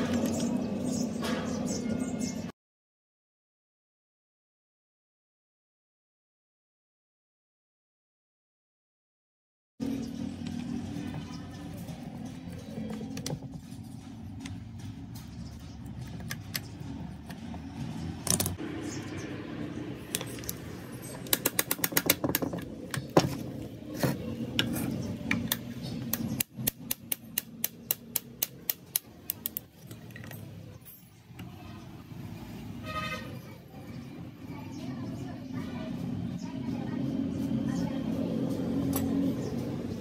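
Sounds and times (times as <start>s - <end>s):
metal tools clinking and tapping: 29.4s - 31.4s.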